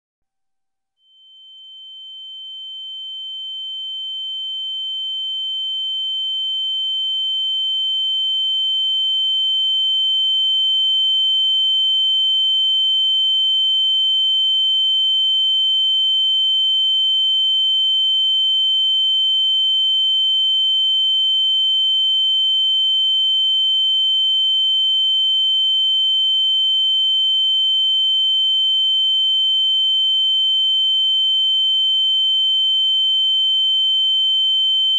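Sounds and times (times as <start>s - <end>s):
high-pitched ringing tone: 1.1s - 7.9s.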